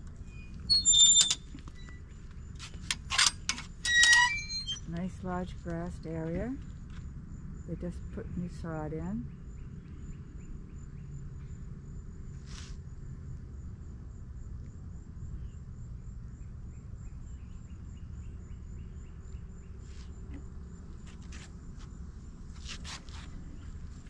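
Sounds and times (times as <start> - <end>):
insect pulsed call: 9.3 - 22.4.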